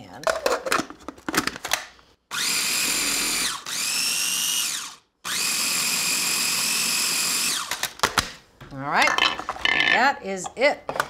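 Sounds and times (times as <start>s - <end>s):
food processor motor whine: 2.3s - 7.8s.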